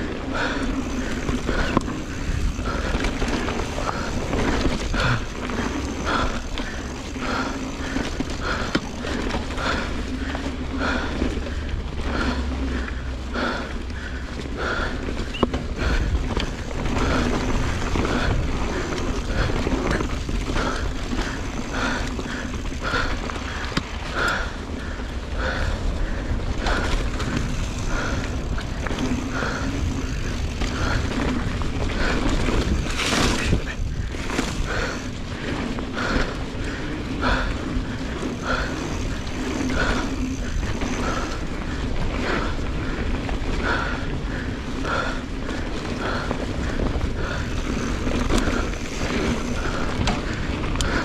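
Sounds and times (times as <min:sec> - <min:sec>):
bike tyres rumbling on dirt: 0:00.0 - 0:51.0
rhythmic puffing: 0:14.6 - 0:42.6.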